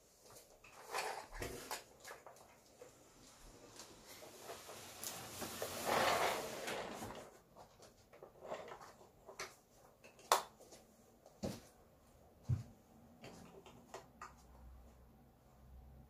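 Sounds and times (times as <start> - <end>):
plastic toys scraping and rustling: 0.2 - 9.6.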